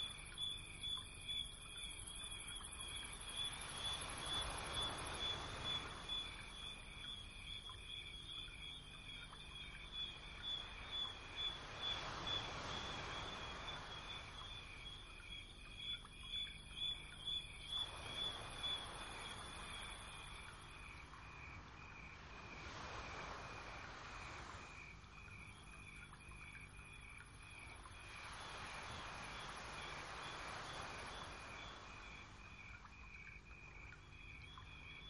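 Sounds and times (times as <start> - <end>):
faint hiss: 8.5 - 35.0.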